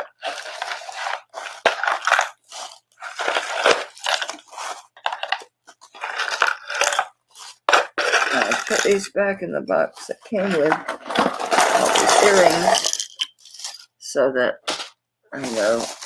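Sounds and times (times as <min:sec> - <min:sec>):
packing paper crinkling: 0:00.0 - 0:09.1, 0:10.0 - 0:13.9, 0:14.7 - 0:16.0.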